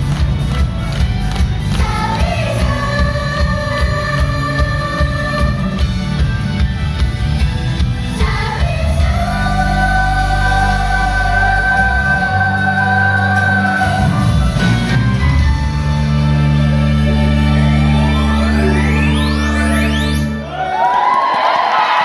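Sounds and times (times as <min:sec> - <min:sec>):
pop backing music: 0:00.0 - 0:20.6
women singing pop song: 0:01.7 - 0:05.8, 0:08.2 - 0:14.4.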